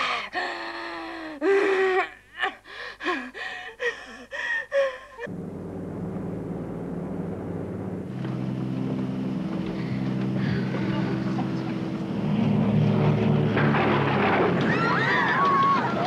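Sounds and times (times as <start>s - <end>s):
woman gasping and moaning in pain: 0.0s - 5.3s
propeller airliner drone: 5.3s - 16.0s.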